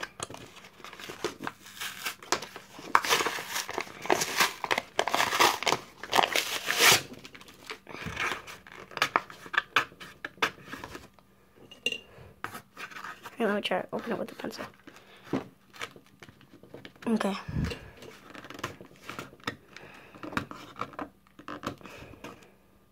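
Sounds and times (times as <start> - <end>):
cardboard crackles and taps: 0.0 - 1.6, 14.0 - 22.5
cardboard tearing and crinkling: 0.0 - 11.1, 18.0 - 19.6.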